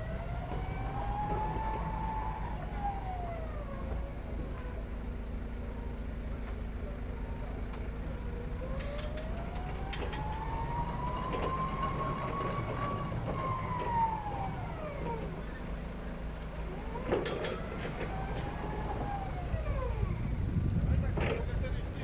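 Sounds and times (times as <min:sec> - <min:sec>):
electric truck drive whining: 0:00.0 - 0:06.0, 0:07.7 - 0:21.6.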